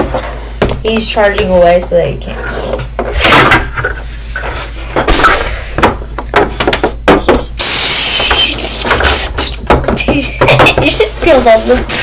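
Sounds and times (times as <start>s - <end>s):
figures rubbing across table: 2.2s - 2.8s, 3.8s - 5.0s.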